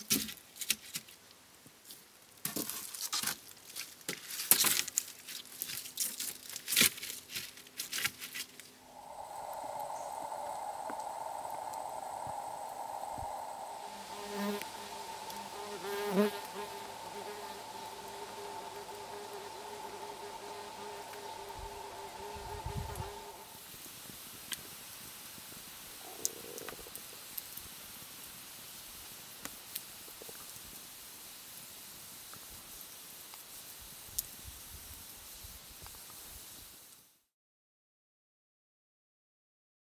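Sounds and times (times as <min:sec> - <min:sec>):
fire hiss: 0:08.8 - 0:25.9
steady buzzing hum: 0:08.9 - 0:23.5.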